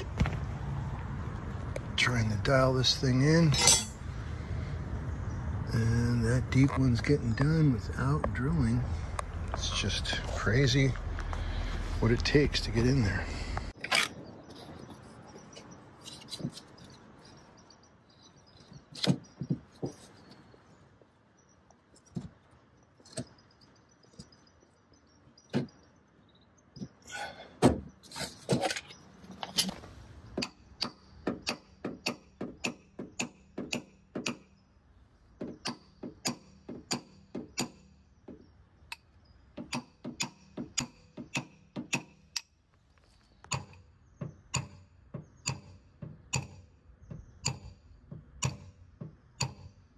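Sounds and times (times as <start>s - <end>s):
tool handling noise: 13.8s - 17.5s, 27.6s - 30.6s
metallic clicks and taps: 43.4s - 43.8s, 47.4s - 48.7s.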